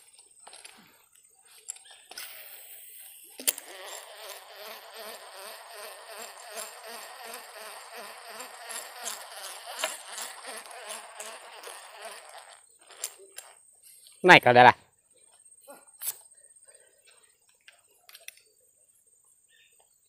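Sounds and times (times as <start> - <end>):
fishing reel buzzing: 2.1 - 13.6
fishing reel click: 3.4 - 13.6.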